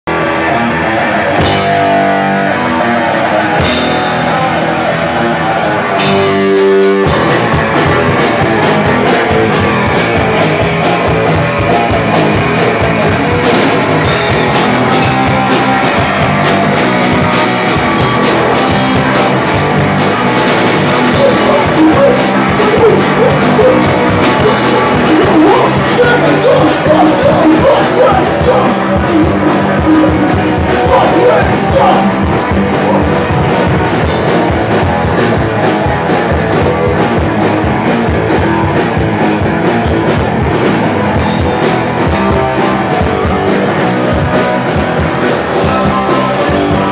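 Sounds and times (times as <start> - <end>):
electric guitar: 0.0 - 46.9
punk band playing live: 0.0 - 46.9
drum and cymbal hits: 6.0 - 46.9
person singing: 20.9 - 33.8.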